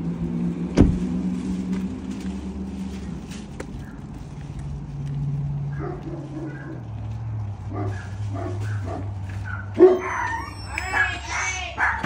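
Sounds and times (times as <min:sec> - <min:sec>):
dog barking and yipping: 0:05.7 - 0:06.9, 0:07.7 - 0:12.0.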